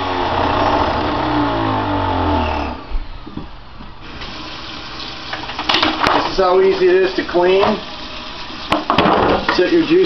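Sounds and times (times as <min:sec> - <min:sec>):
juicer motor winding down: 0:00.0 - 0:02.9, 0:04.0 - 0:05.8.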